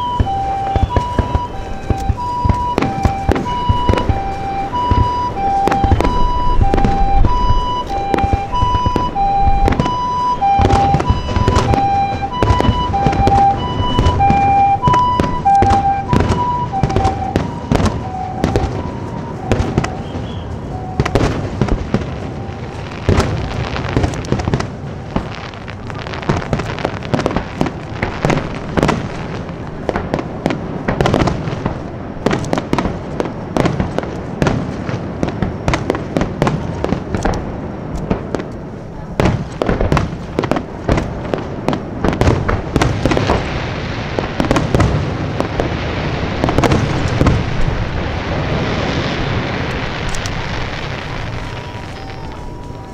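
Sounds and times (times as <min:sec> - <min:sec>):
two-tone siren: 0:00.0 - 0:23.7, 0:51.0 - 0:52.9
fireworks shells bursting: 0:00.0 - 0:30.3, 0:45.6 - 0:52.9.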